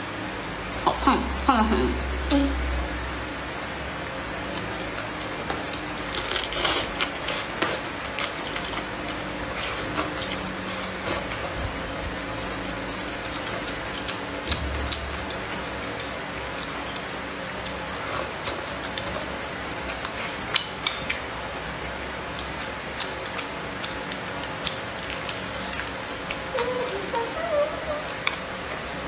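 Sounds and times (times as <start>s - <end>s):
faint hum: 0.0s - 29.0s
chewing clicks and crackles: 4.5s - 11.5s, 12.3s - 21.3s, 22.3s - 27.0s.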